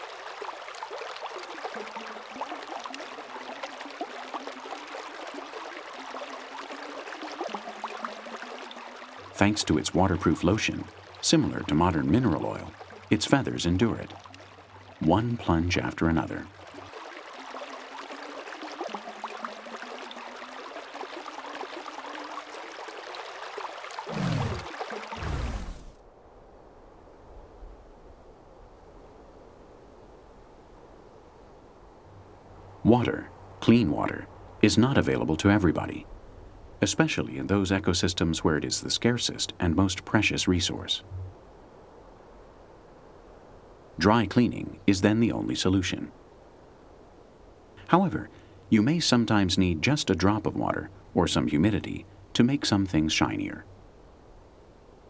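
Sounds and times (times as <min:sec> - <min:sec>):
creek water rushing over rocks: 0:00.0 - 0:25.9.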